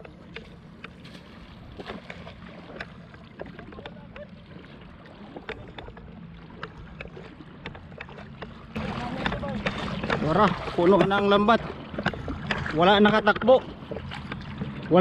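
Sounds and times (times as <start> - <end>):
water sloshing around wading legs: 0.0 - 15.0.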